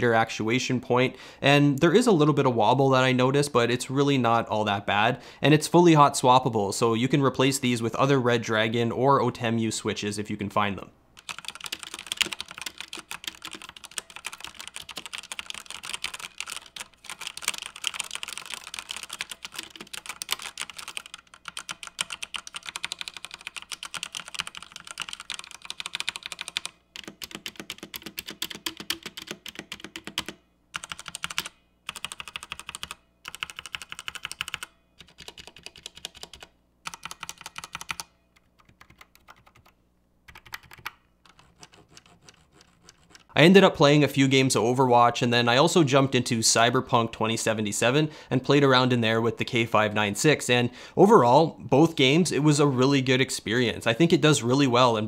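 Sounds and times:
mechanical keyboard typing: 11.2 - 43.3.

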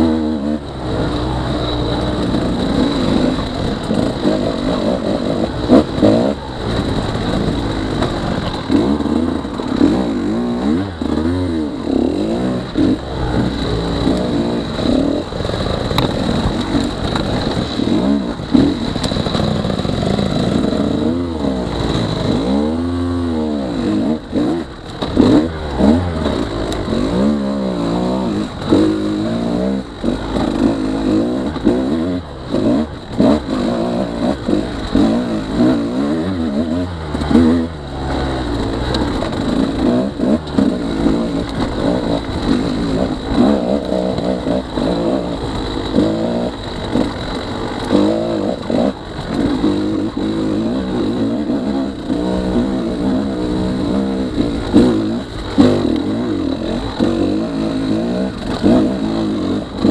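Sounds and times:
two-stroke motorcycle engine revving: 0.0 - 59.9.

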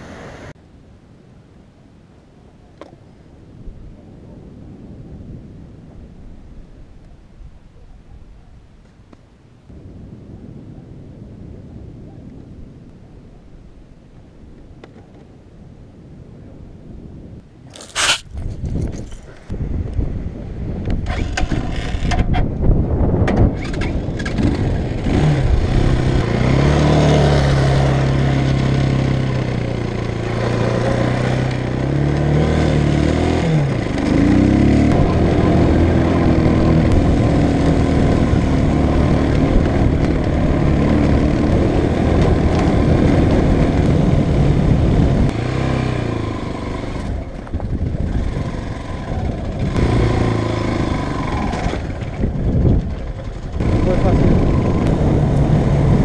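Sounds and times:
motorcycle engine revving: 23.6 - 56.0.

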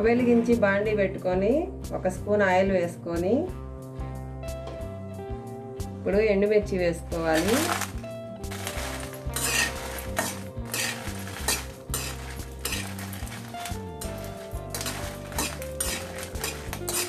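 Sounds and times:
metal spatula scraping a pan: 7.2 - 17.0
oil sizzling: 7.2 - 17.0.

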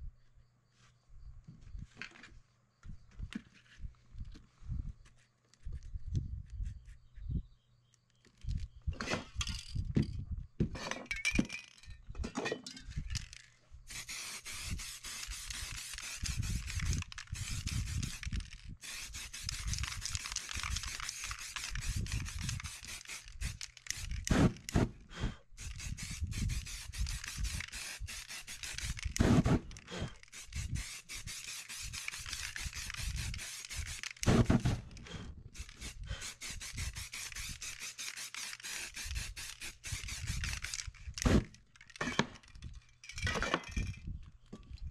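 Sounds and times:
spray paint can hissing: 13.9 - 24.8, 25.6 - 34.9, 35.6 - 41.6.

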